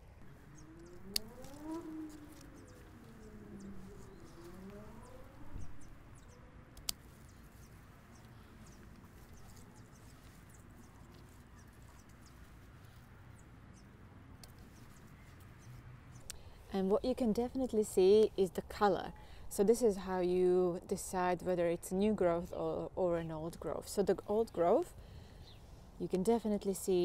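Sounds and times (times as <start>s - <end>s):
faint rising and falling tone: 0.0s - 14.0s
faint rustling of stems: 0.0s - 19.6s
secateurs cutting stem click: 0.8s - 2.7s, 6.8s - 9.6s, 14.4s - 14.6s.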